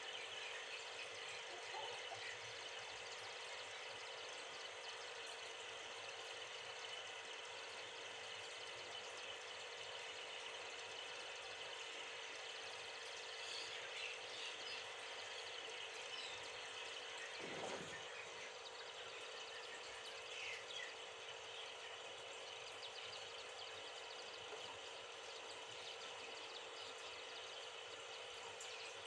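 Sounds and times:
low hum: 17.2 - 18.9.

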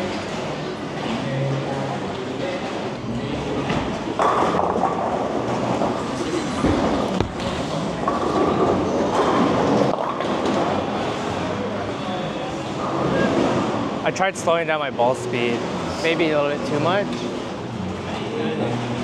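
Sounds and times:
bowling balls rolling on wooden lanes: 3.0 - 11.7
bowling ball thuds: 3.7 - 10.6.

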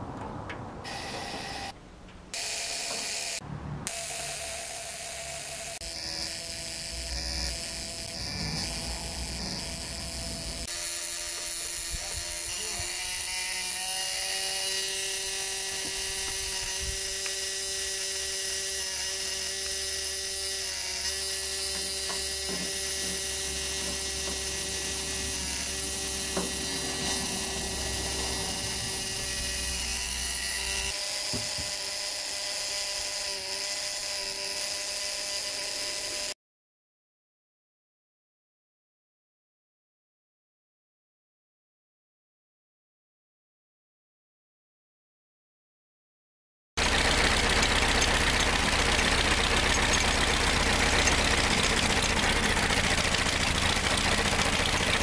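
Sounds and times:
ignition coil buzzing: 0.8 - 36.3, 46.8 - 55.0.

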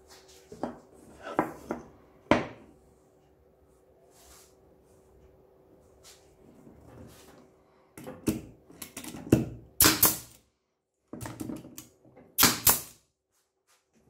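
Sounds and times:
brad nailer firing: 9.8 - 10.4, 12.4 - 13.0.

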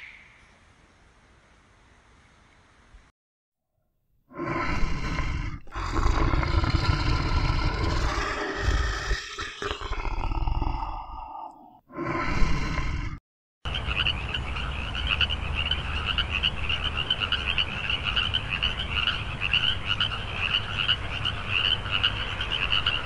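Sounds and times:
frogs croaking: 13.7 - 23.0.

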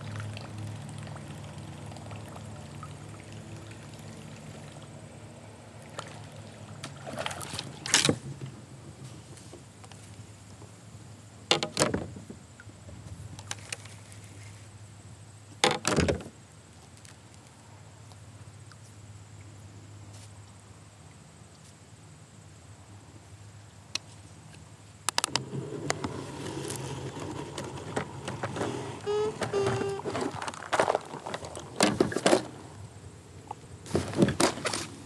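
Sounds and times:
water dripping and lapping: 0.0 - 8.1
paddle strokes splashing water: 5.7 - 8.4, 25.4 - 32.8, 33.4 - 35.0.

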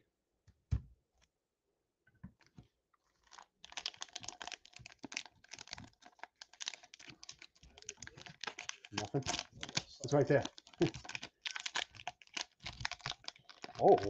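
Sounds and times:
packaging crinkling: 2.4 - 14.0.

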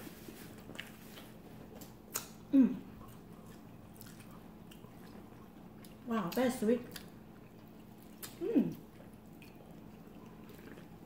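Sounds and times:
person chewing food: 0.0 - 11.0
person humming: 2.5 - 2.9, 8.4 - 8.8.

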